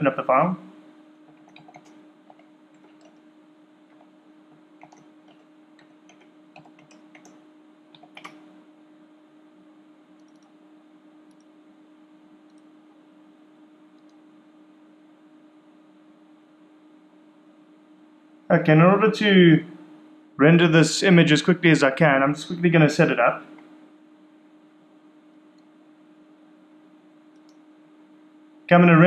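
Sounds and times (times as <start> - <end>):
steady low hum: 0.0 - 29.0
keyboard and mouse clicks: 1.3 - 3.2, 4.8 - 8.5, 10.2 - 10.5.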